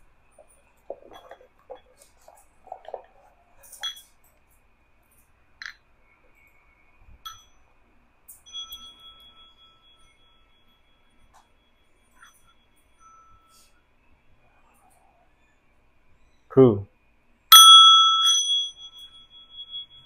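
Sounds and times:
metal bowl clattering: 0:00.4 - 0:04.1
singing bowl ringing: 0:03.6 - 0:04.2, 0:07.2 - 0:13.9, 0:17.5 - 0:20.0
wooden striker clinking on bowl: 0:03.8 - 0:04.1.

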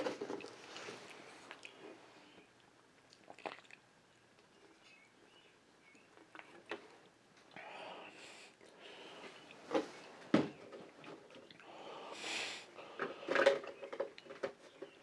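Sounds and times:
heavy breathing and sniffing: 0:11.6 - 0:13.5.

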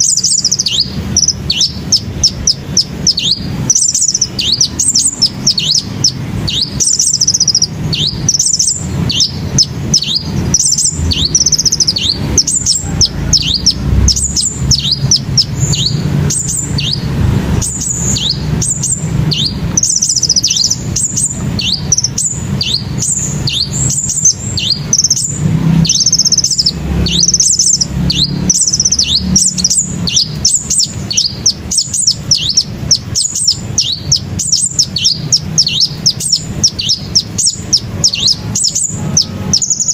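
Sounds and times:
birds chirping and twittering: 0:00.0 - 0:39.9
low steady rumble: 0:00.0 - 0:39.9.

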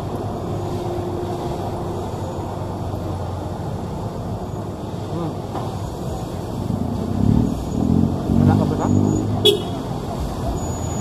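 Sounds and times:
street traffic noise: 0:00.0 - 0:11.0
vehicle engine humming nearby: 0:00.0 - 0:11.0.

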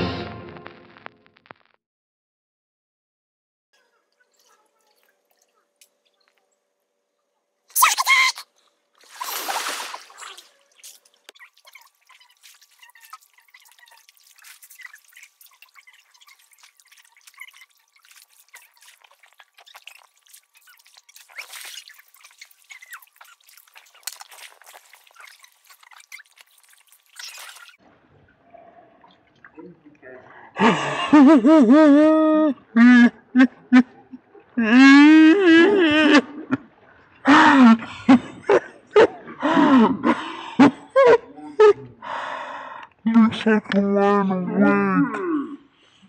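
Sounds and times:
pool water splashing: 0:07.7 - 0:29.8.

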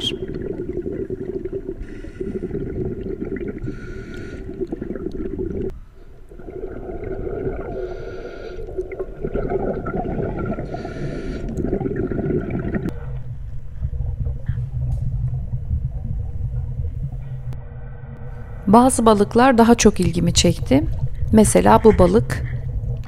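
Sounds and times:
muffled underwater gurgle: 0:08.8 - 0:17.6, 0:20.0 - 0:23.0
low dull rumble: 0:11.6 - 0:23.0.

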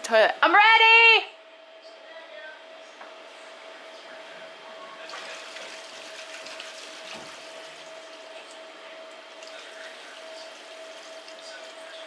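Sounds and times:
water rushing down drain pipe: 0:05.2 - 0:08.2, 0:09.4 - 0:12.0.

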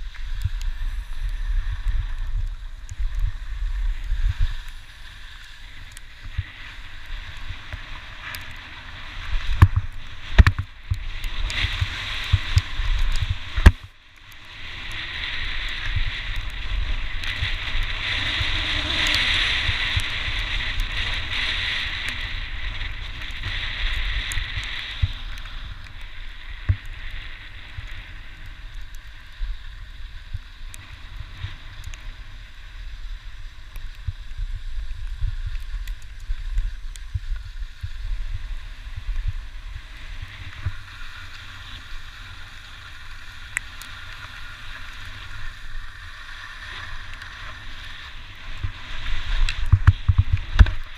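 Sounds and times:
skis scraping on snow: 0:00.0 - 0:13.8, 0:14.4 - 0:50.9
wind buffeting a camera: 0:14.8 - 0:50.9.

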